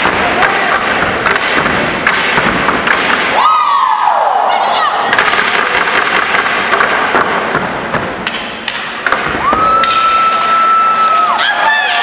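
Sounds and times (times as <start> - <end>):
sharp knocks: 0.0 - 3.4, 5.1 - 10.2
crowd cheering: 3.3 - 5.0, 9.3 - 12.0.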